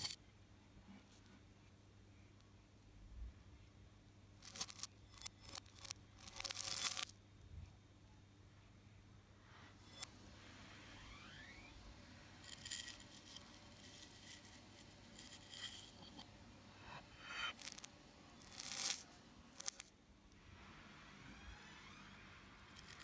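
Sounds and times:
spoon scraping cereal in bowl: 0:04.4 - 0:07.1, 0:12.4 - 0:16.4, 0:17.2 - 0:19.9, 0:22.8 - 0:23.0.

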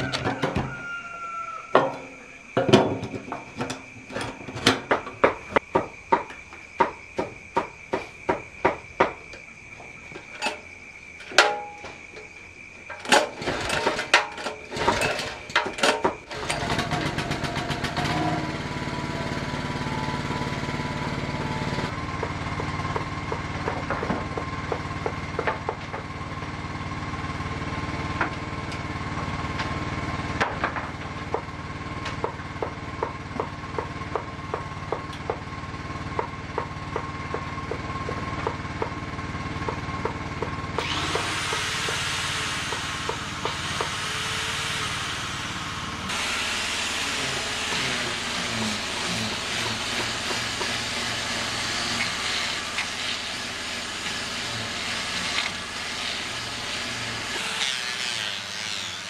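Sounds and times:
sharp knocks: 0:04.7 - 0:09.3
small engine running: 0:16.2 - 0:59.0.

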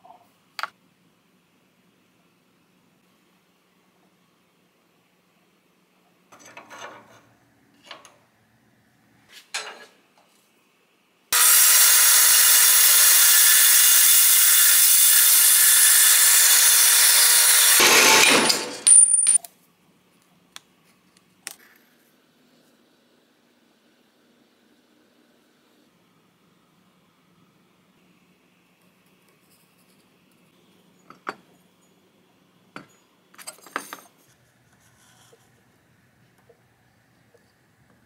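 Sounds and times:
band saw cutting metal: 0:11.4 - 0:18.9.

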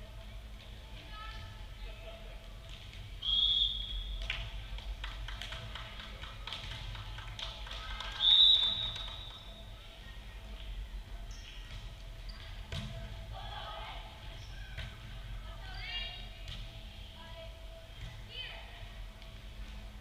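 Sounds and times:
low chatter: 0:00.0 - 0:20.0
referee's whistle: 0:03.2 - 0:04.2, 0:08.2 - 0:09.6
balls tapping and thudding: 0:11.6 - 0:13.2.

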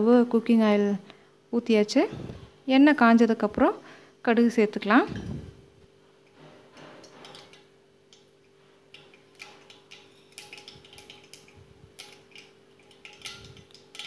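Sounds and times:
seeds popping in hot oil: 0:06.3 - 0:14.0.

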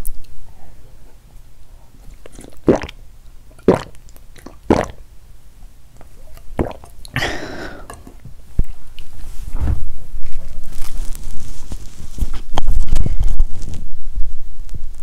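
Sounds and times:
noisy mouth sound: 0:02.0 - 0:05.1, 0:06.2 - 0:08.0
person gulping drink: 0:02.0 - 0:05.1, 0:06.0 - 0:08.2.

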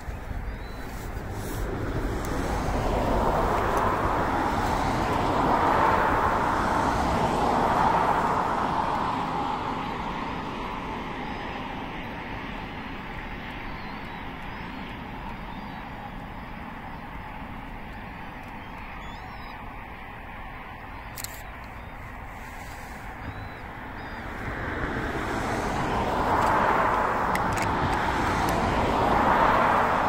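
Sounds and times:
road vehicle passing by: 0:00.0 - 0:13.5, 0:20.1 - 0:30.0.

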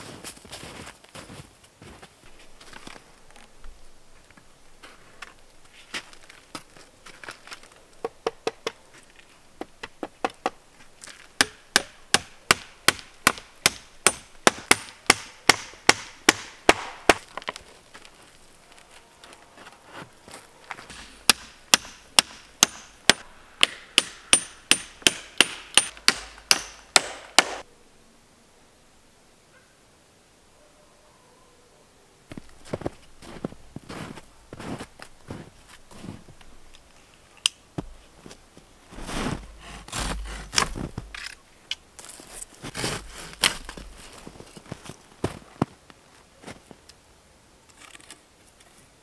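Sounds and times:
hatchet hammering on wood: 0:11.4 - 0:17.2, 0:20.9 - 0:27.6.

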